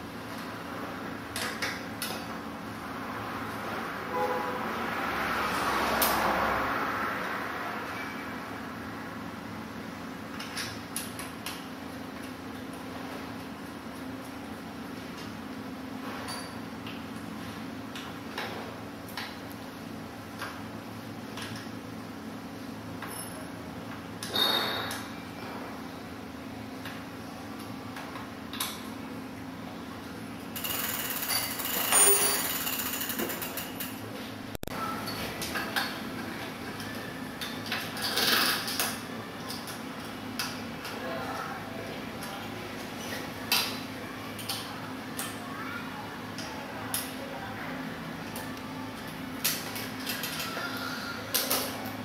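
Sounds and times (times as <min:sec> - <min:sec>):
bicycle parts clicking and knocking: 0:01.3 - 0:02.3, 0:10.3 - 0:11.6, 0:30.6 - 0:34.0, 0:36.8 - 0:41.0, 0:49.4 - 0:50.6
hub motor wheel whirring: 0:30.5 - 0:34.0.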